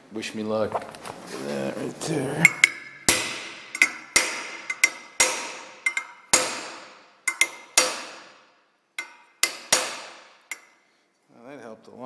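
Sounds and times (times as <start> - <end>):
hammer striking metal punch: 2.4 - 10.8.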